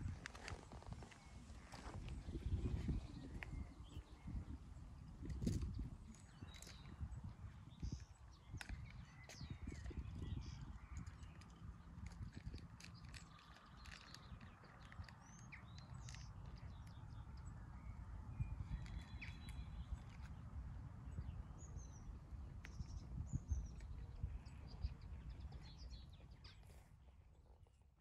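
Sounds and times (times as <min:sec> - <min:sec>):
low gusty rumble: 0:00.0 - 0:12.8, 0:13.4 - 0:26.8
small birds chirping: 0:00.0 - 0:27.7.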